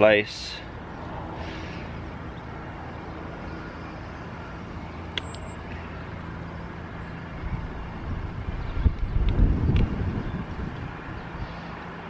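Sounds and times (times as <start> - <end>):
distant road traffic hum: 0.0 - 12.0
wind buffeting microphone: 7.4 - 12.0.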